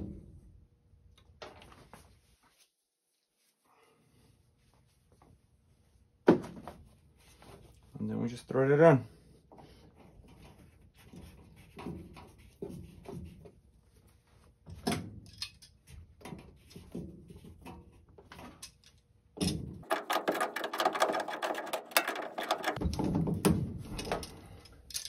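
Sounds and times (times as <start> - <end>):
plastic fitting scraping and clicking: 19.8 - 22.8
rapid clicking and creaking: 19.8 - 23.2.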